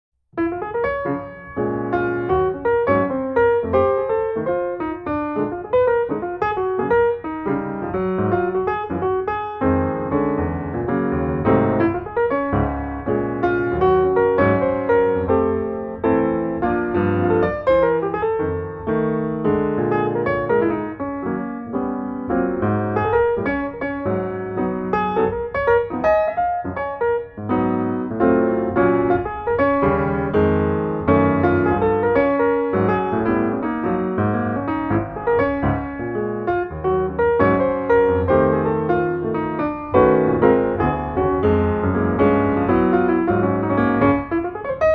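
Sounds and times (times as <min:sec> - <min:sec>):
piano music: 0:00.3 - 0:44.9.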